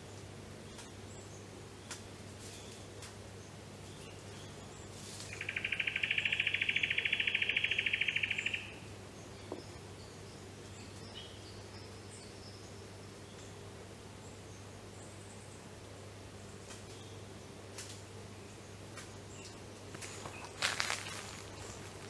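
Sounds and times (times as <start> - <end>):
faint low hum: 8.6 - 22.0.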